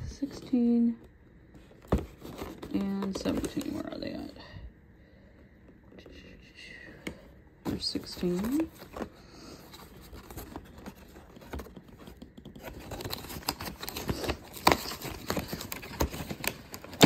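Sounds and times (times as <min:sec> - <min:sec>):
cardboard tearing and crackling: 0:09.8 - 0:17.0.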